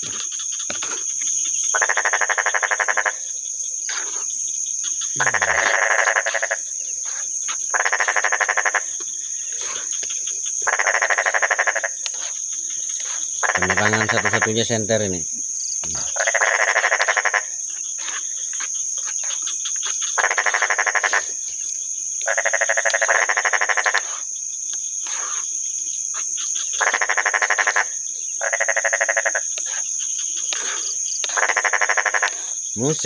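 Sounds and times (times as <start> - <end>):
frogs calling: 0.0 - 33.0.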